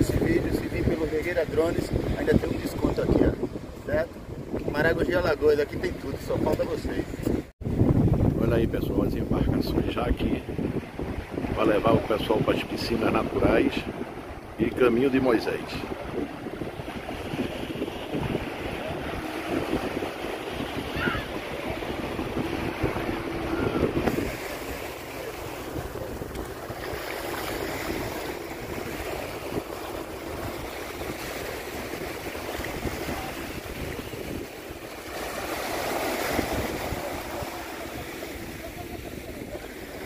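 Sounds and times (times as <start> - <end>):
wind buffeting microphone: 0.0 - 40.0
small waves washing on sand: 9.8 - 40.0.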